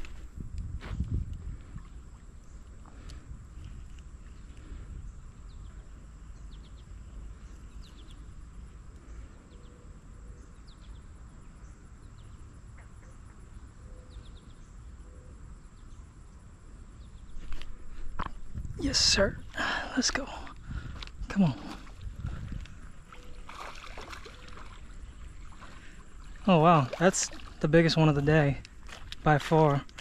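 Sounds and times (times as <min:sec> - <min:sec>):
low wind rumble: 0:00.0 - 0:12.6, 0:15.6 - 0:30.0.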